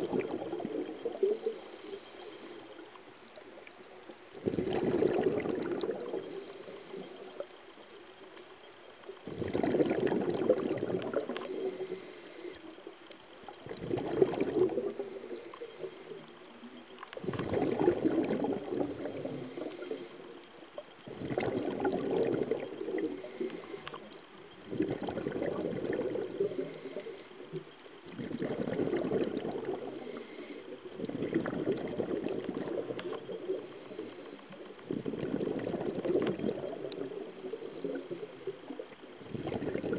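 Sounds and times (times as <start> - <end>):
underwater exhaled bubbles gurgling: 0.0 - 39.9.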